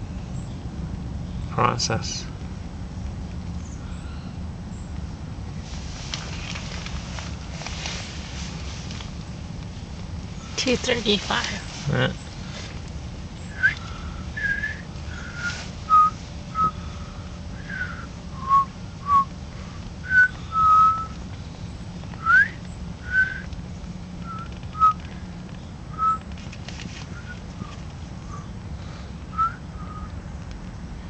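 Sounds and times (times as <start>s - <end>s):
person whistling short notes: 13.5s - 16.8s, 17.6s - 19.3s, 20.0s - 21.1s, 22.2s - 23.5s, 24.2s - 25.0s, 26.0s - 26.2s, 29.3s - 30.2s.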